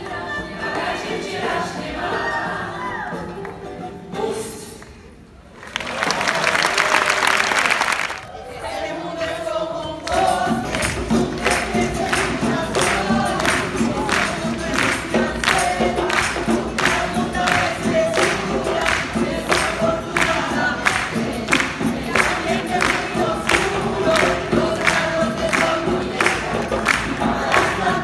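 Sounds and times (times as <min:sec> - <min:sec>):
group singing in chorus: 0:00.0 - 0:04.5, 0:08.2 - 0:28.0
steady percussion beat: 0:10.1 - 0:28.0.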